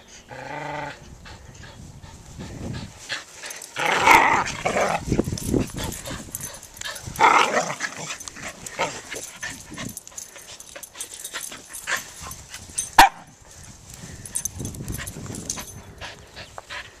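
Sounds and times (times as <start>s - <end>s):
dogs yipping and barking: 3.5s - 13.4s.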